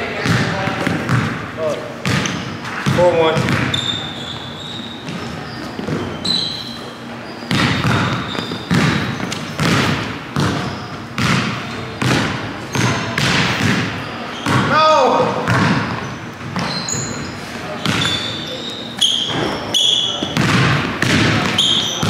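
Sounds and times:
sneaker squeaks: 0.1 - 22.0
basketball bouncing on wooden floor: 0.2 - 1.4, 2.0 - 4.0, 7.5 - 14.7, 15.4 - 17.1, 17.8 - 18.2, 20.2 - 22.0.

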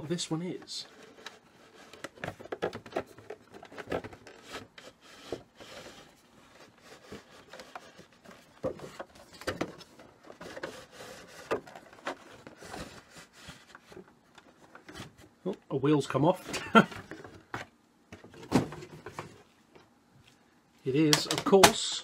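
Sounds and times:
cardboard and plastic packaging handled: 0.0 - 15.5.

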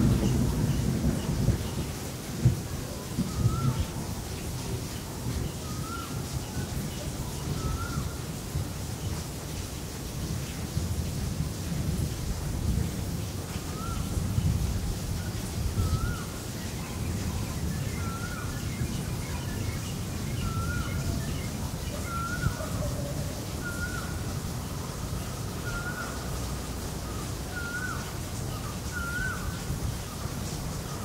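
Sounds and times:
bird calling: 5.6 - 6.2, 7.6 - 8.2, 15.8 - 26.4, 27.0 - 30.2.

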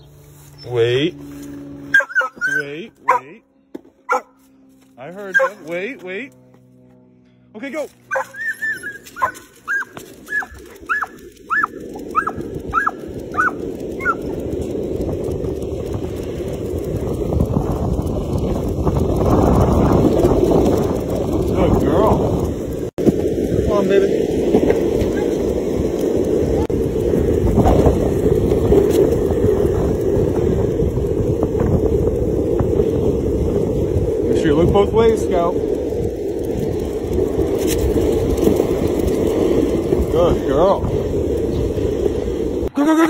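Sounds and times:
running footsteps: 1.2 - 21.5
dog whining yelps: 1.9 - 3.2, 5.3 - 5.6, 8.1 - 14.2
wind noise: 8.1 - 43.0.

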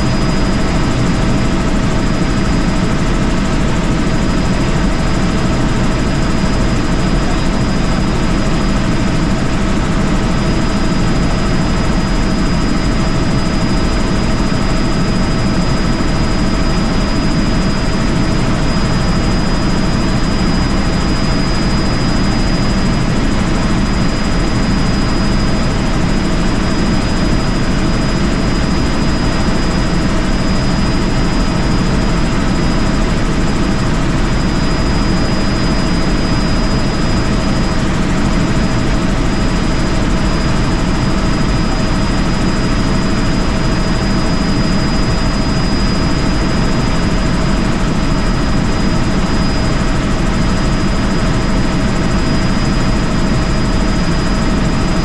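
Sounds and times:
helicopter rotor and engine noise: 0.0 - 55.0.

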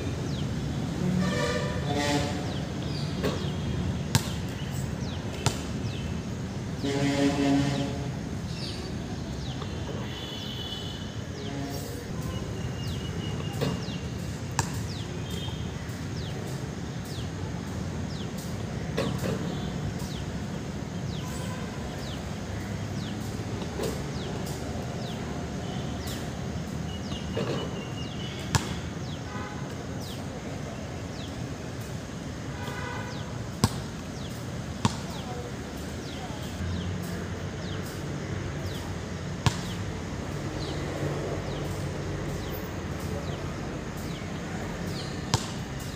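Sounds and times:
outdoor background noise: 0.0 - 45.9
basketball bouncing on concrete: 4.1 - 4.5, 14.6 - 14.8, 28.5 - 28.8, 33.6 - 33.9, 34.8 - 35.2, 39.4 - 39.8, 45.3 - 45.6.

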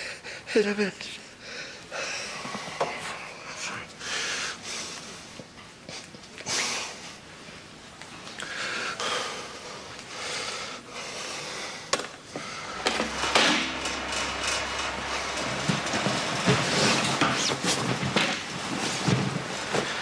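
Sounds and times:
electric fan humming: 10.8 - 20.0.

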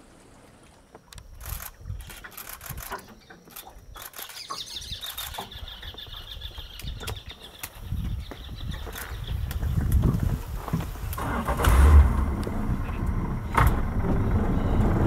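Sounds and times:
otters crunching food: 1.0 - 7.9
high chittering: 1.4 - 5.8
low rumble: 9.4 - 15.0.

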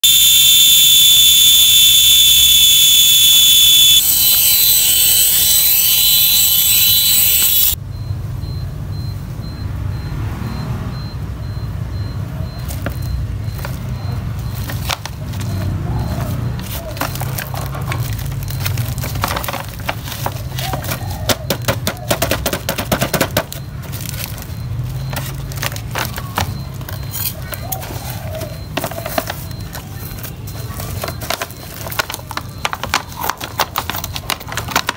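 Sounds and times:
loud high-pitched tone: 0.0 - 7.8
plastic wrapping crinkling: 16.6 - 21.2, 23.5 - 26.4.

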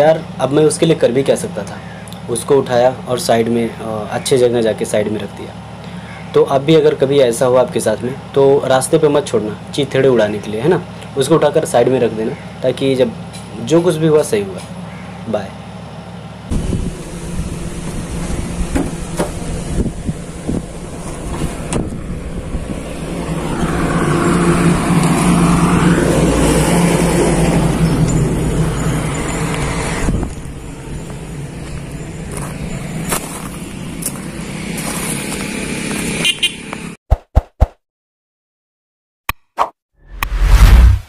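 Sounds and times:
traffic hum: 0.0 - 37.0
vehicle passing close by: 16.5 - 36.2.

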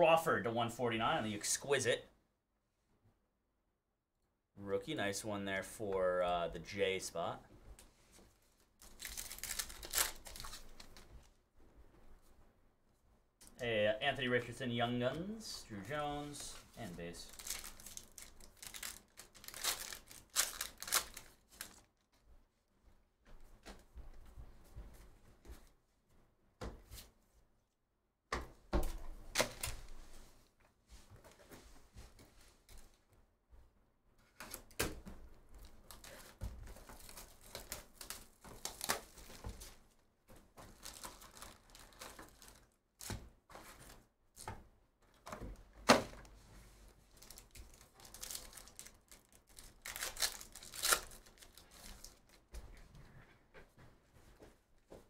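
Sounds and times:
foil wrappers tearing and crinkling: 8.8 - 10.9, 17.2 - 21.8, 35.9 - 39.4, 40.7 - 42.7, 47.2 - 52.4.

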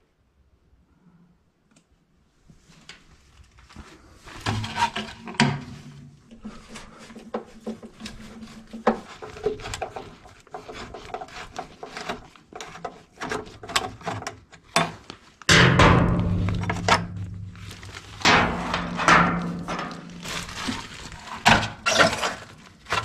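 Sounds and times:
metal and wiring scraping: 4.3 - 14.2, 15.8 - 23.0.

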